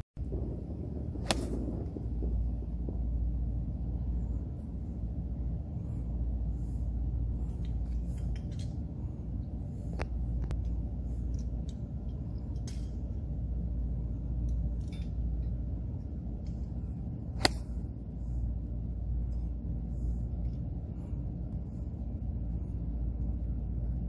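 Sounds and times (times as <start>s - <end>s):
low rumble: 0.0s - 24.0s
golf club striking ball: 1.2s - 1.5s, 17.4s - 17.8s.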